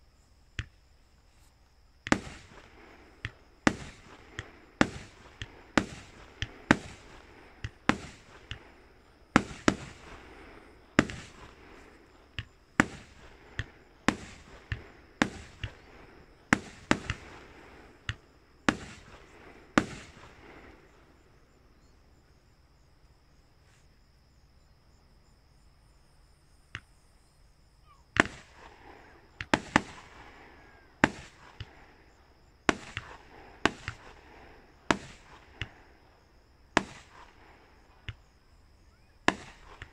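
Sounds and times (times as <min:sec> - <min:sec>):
firework shells bursting: 0:02.0 - 0:21.4, 0:28.2 - 0:38.4, 0:39.2 - 0:39.9.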